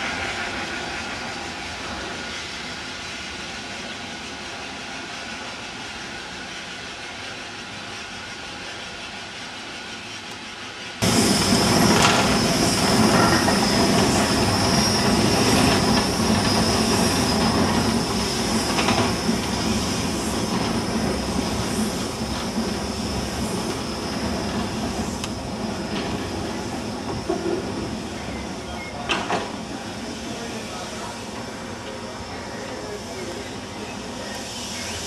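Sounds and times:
train rumbling rattle: 0:00.0 - 0:35.0
wheel squeal: 0:11.0 - 0:29.1.

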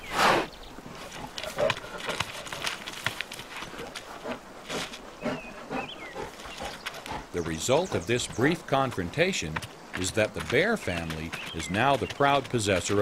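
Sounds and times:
animal grunts and growls: 0:00.0 - 0:03.0, 0:03.6 - 0:13.0
rocks clattering: 0:01.2 - 0:04.1, 0:06.8 - 0:13.0.

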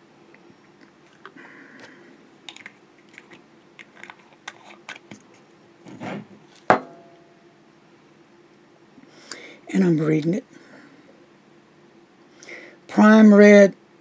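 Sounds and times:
faint steady hum: 0:00.0 - 0:14.0
sharp knock with ring: 0:06.7 - 0:07.2.

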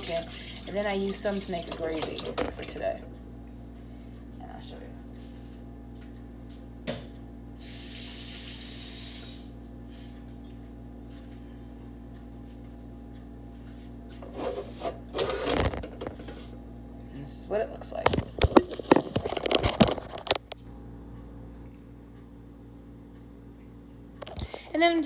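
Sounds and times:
kitchen tap running: 0:00.0 - 0:02.8, 0:07.6 - 0:09.5
steady low hum: 0:00.0 - 0:25.0.

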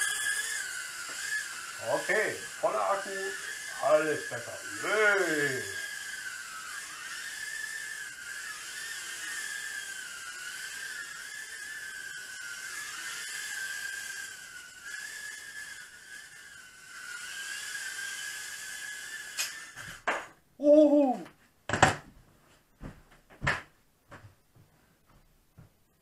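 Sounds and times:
micro drone motor whine: 0:00.0 - 0:21.2.

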